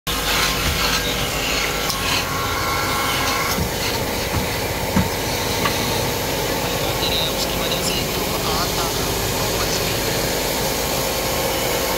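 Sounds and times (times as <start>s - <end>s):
hand tool scraping spinning wood: 0.1s - 6.5s
wood lathe running: 0.1s - 11.9s.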